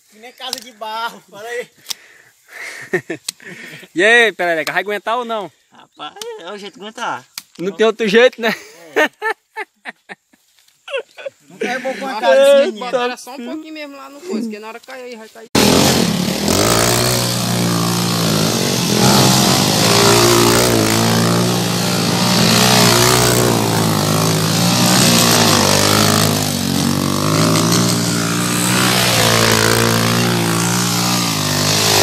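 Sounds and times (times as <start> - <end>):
dirt bike engine revving: 15.6 - 32.0.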